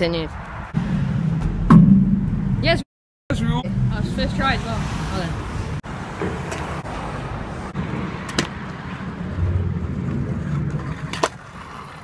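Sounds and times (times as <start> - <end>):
scooter wheels rolling on tarmac: 7.8 - 12.0
scooter clacks: 9.4 - 12.0.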